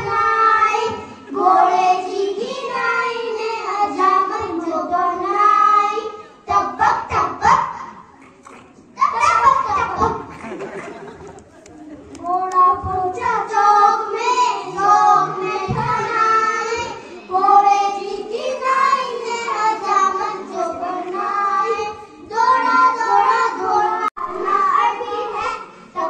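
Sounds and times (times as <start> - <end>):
children singing: 0.0 - 8.0, 12.2 - 26.0.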